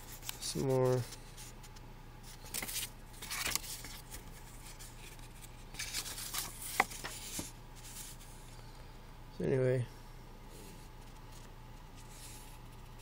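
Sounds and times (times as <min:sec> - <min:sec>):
paper rustling and sliding: 0:00.0 - 0:08.4.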